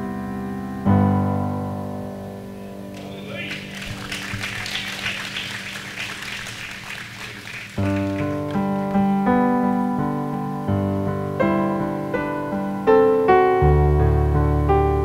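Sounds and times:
piano playing slow chords: 0:00.0 - 0:15.0.

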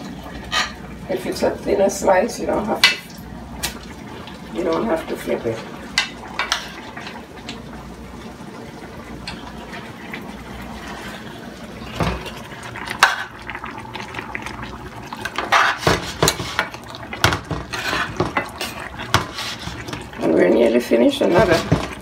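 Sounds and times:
metal spoon scraping frying pan: 0:15.4 - 0:16.7, 0:17.5 - 0:19.9.

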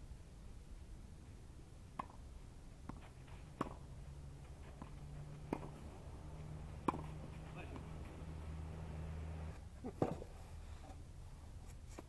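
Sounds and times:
faint ball taps: 0:06.8 - 0:08.1.

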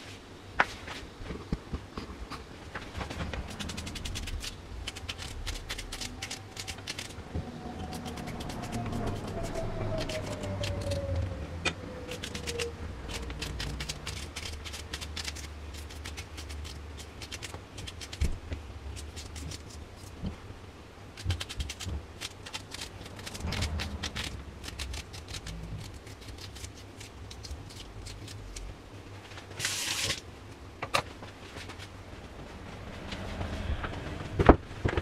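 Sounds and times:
knife cutting onion: 0:07.8 - 0:11.2.

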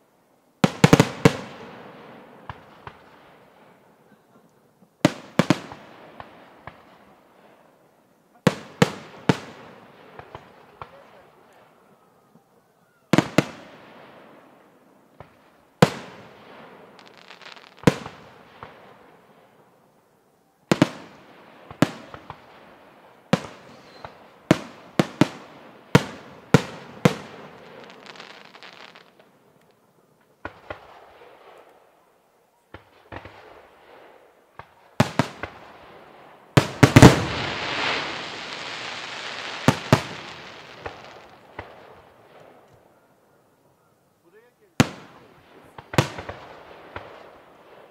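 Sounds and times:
firework crackling: 0:00.6 - 0:04.2, 0:13.2 - 0:19.8, 0:20.7 - 0:31.8, 0:32.8 - 0:42.9, 0:44.3 - 0:47.9
firework shells bursting: 0:36.6 - 0:42.8.

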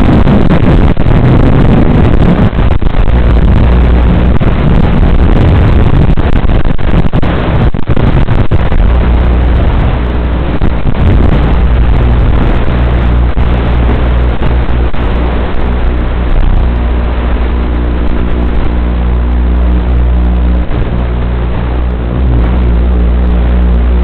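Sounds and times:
drone propellers buzzing: 0:00.0 - 0:24.0.

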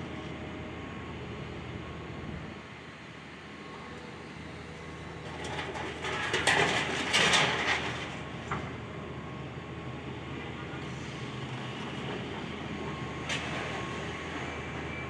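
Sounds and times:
diesel engine running: 0:00.0 - 0:15.0
debris crunching and clattering: 0:05.3 - 0:08.2.

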